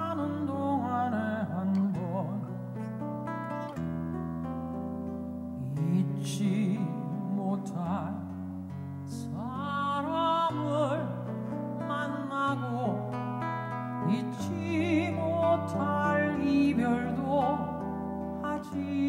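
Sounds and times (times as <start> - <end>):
acoustic guitar: 0.0 - 19.0
woman singing low: 14.0 - 17.8.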